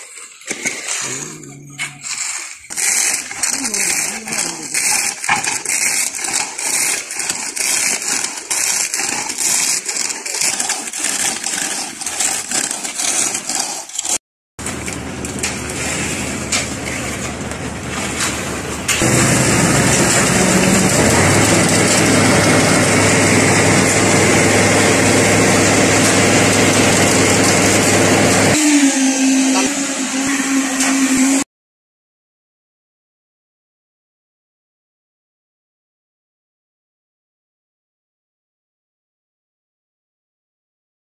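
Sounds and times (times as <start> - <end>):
shovels scraping wet concrete: 0.0 - 31.4
engine running steadily: 14.6 - 28.6.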